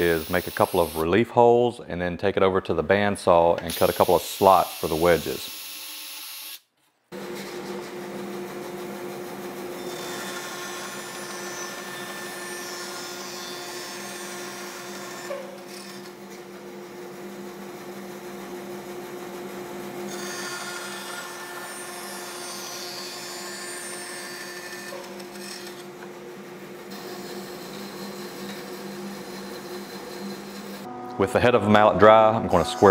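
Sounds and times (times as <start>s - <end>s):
bandsaw motor hum: 7.2s - 32.9s
bandsaw blade cutting wood: 20.1s - 26.0s, 26.9s - 30.9s.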